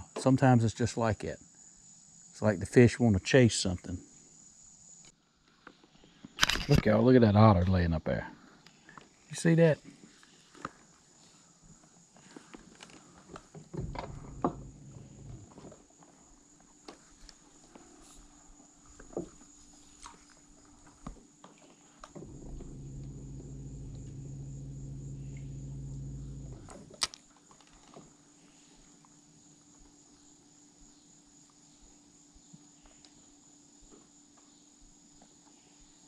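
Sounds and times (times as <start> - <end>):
electric trolling motor humming: 13.8 - 15.4, 22.2 - 27.0
faint high-pitched whine: 13.8 - 15.6, 22.1 - 27.2.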